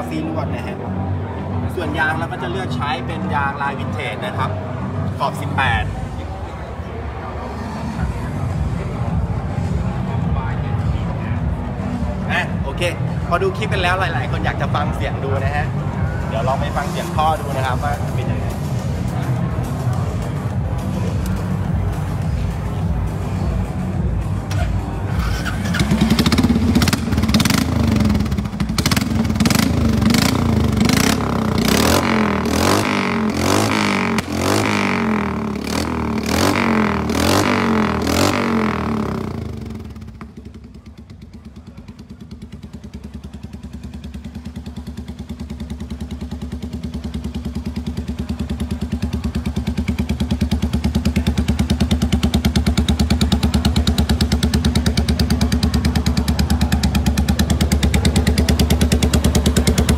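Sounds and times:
motorcycle engine idling: 0:08.0 - 0:59.9
motorcycle engine revving: 0:13.9 - 0:59.9.

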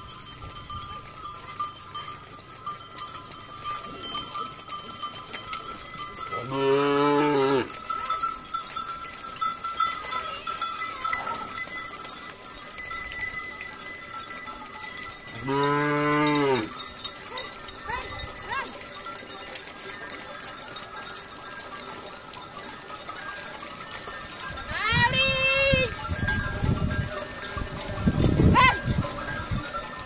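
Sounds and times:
cowbells ringing: 0:00.0 - 0:30.0
cattle mooing: 0:06.4 - 0:07.8, 0:15.4 - 0:16.8.

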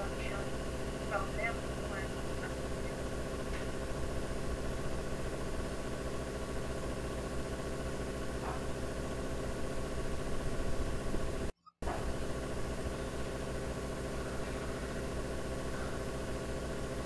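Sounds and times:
steady hum of held tones: 0:00.0 - 0:17.0.

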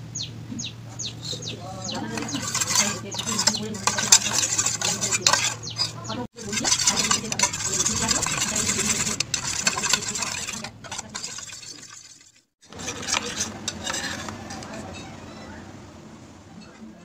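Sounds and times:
wet stirring swish: 0:02.0 - 0:15.2
spoon clinking in metal bowl: 0:02.2 - 0:15.5.

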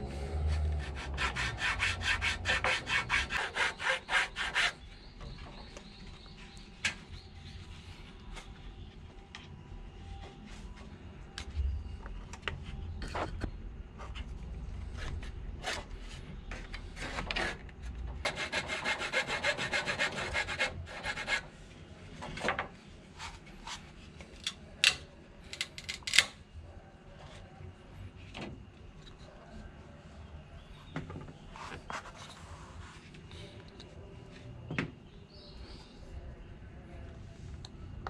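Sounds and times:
hand saw cutting wood: 0:00.4 - 0:04.8, 0:18.3 - 0:21.4.

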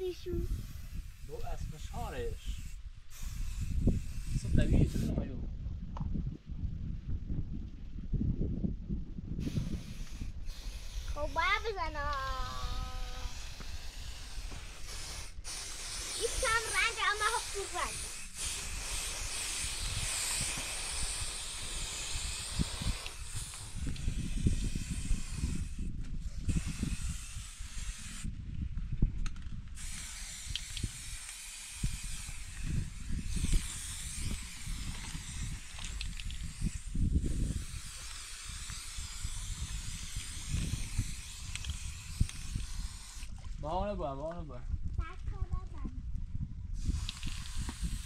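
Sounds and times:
spray can hissing: 0:00.4 - 0:01.6, 0:02.6 - 0:05.1, 0:09.4 - 0:28.3, 0:29.8 - 0:43.4, 0:46.8 - 0:48.0.

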